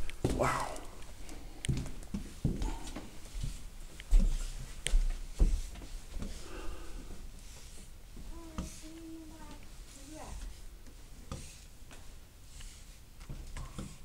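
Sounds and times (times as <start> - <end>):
footsteps: 0.0 - 10.6.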